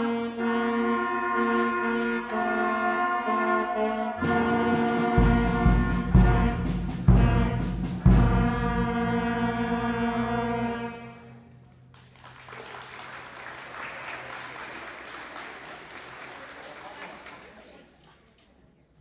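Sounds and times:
concert band holding a chord: 0.0s - 11.5s
drum strikes: 4.2s - 9.2s
audience applause: 11.9s - 18.0s.

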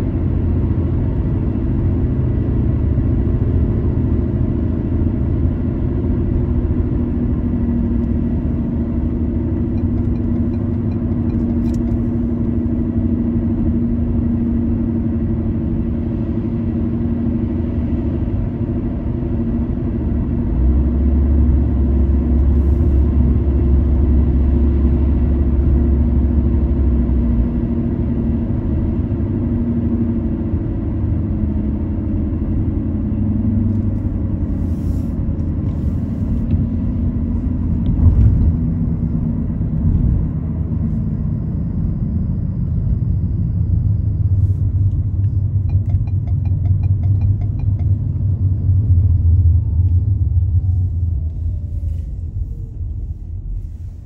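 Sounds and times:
car engine and road rumble: 0.0s - 54.0s
low steady hum: 31.6s - 54.0s
deep loud rumble: 35.8s - 54.0s.

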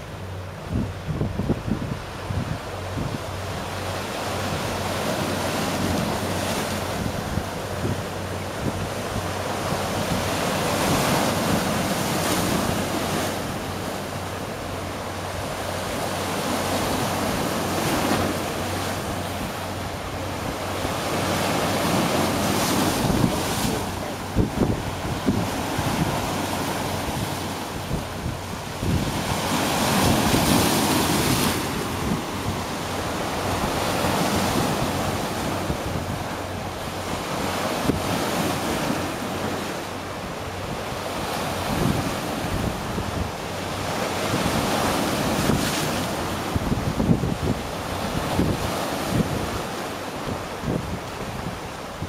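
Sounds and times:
waves splashing over rocks: 0.0s - 52.0s
wind buffeting microphone: 0.2s - 52.0s.

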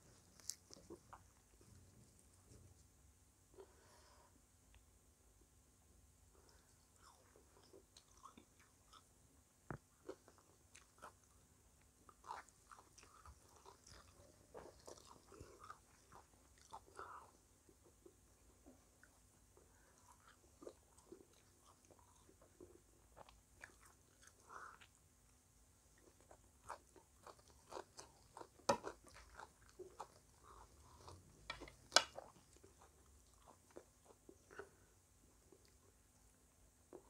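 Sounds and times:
crunching and chewing pastry: 0.0s - 2.8s, 6.4s - 37.0s.

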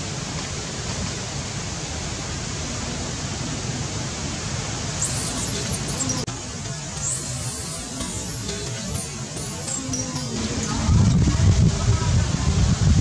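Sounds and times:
steady hiss: 0.0s - 13.0s
faint high squeaks: 5.0s - 6.3s, 7.0s - 10.9s.

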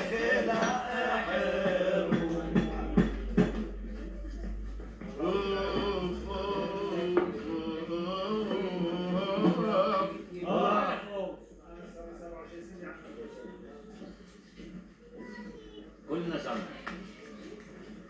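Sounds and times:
men singing a refrain: 0.0s - 3.7s, 5.0s - 11.1s.

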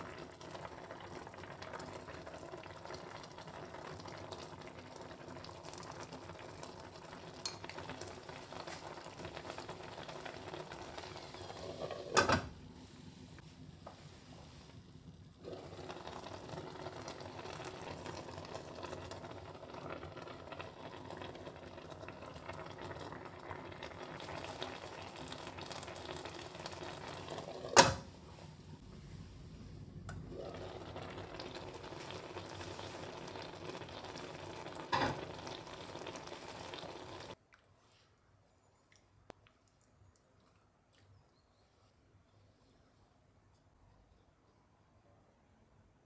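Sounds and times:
broth bubbling in a frying pan: 0.0s - 12.2s, 14.5s - 28.2s, 30.1s - 37.4s.

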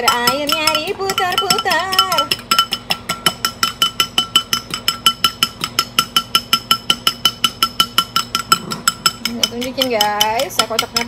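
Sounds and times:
fork beating egg in bowl: 0.0s - 11.0s.

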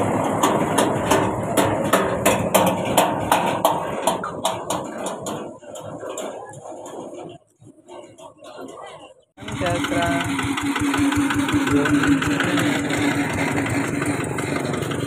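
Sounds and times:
rhythmic clatter: 0.1s - 15.0s.

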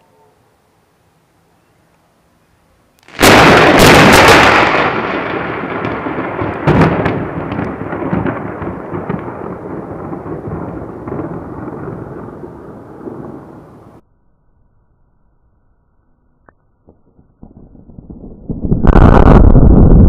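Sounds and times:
thunder crack: 3.1s - 14.0s, 17.1s - 20.0s
thunder rumble: 3.1s - 14.0s, 16.9s - 20.0s.

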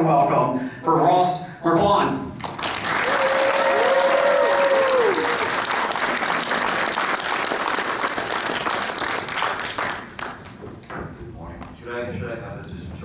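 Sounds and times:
audience applauding: 2.4s - 10.6s
crowd cheering: 2.9s - 9.3s.

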